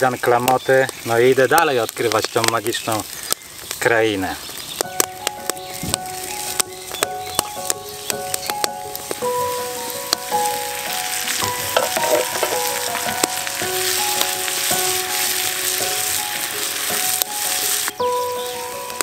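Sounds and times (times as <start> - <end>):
food sizzling in a frying pan: 0.0 - 19.0
background music with held notes: 4.8 - 19.0
utensil clicking against pan: 11.5 - 13.4.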